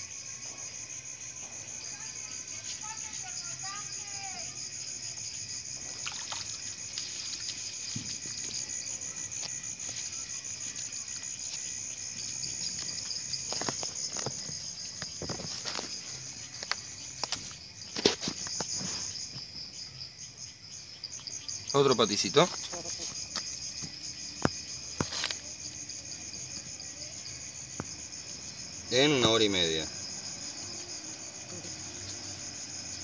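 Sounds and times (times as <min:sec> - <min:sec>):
night insects trilling: 0:00.0 - 0:33.0.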